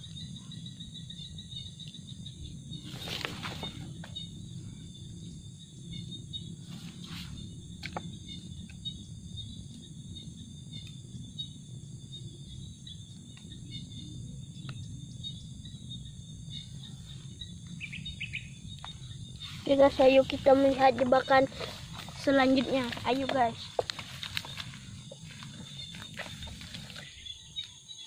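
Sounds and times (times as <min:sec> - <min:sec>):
insects chirping: 0:00.0 - 0:28.0
sticks clicking and rustling: 0:21.5 - 0:27.1.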